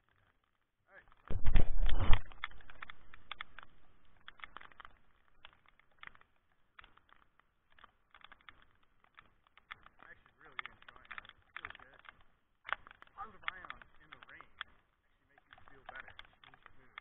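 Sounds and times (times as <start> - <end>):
raindrops ticking on camera: 0.0 - 17.0
low muffled rumble on microphone: 1.3 - 4.0.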